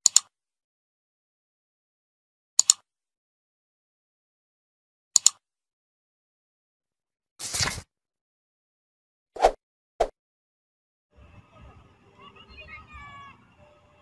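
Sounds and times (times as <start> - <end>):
mouse clicks: 0.0 - 0.3, 2.6 - 2.8, 5.2 - 5.4.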